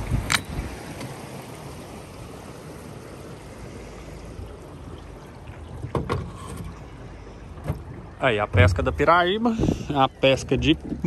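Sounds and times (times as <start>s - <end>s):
river water rushing: 0.0s - 10.3s.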